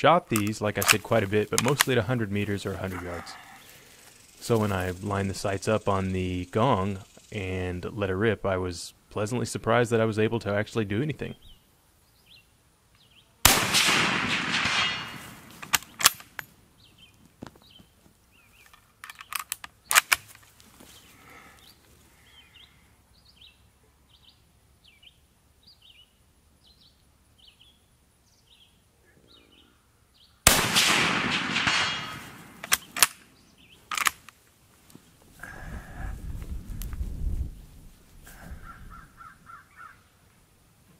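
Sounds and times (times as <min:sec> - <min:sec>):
rifle bolt clicks: 0:00.4 - 0:01.0, 0:14.5 - 0:16.5, 0:18.7 - 0:20.4, 0:30.5 - 0:33.2, 0:33.9 - 0:34.4
small birds chirping: 0:00.4 - 0:08.0, 0:11.0 - 0:13.4, 0:16.8 - 0:30.4, 0:32.4 - 0:33.9, 0:37.4 - 0:40.4
rifle shots echoing: 0:13.4 - 0:16.4, 0:30.4 - 0:33.2.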